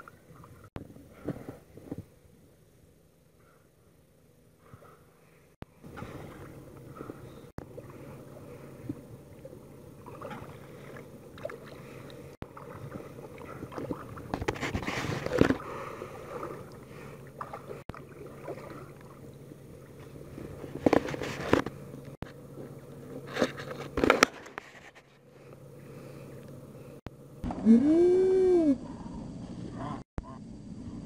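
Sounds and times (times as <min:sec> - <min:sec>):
water splashing against kayak: 0:05.8 - 0:21.7.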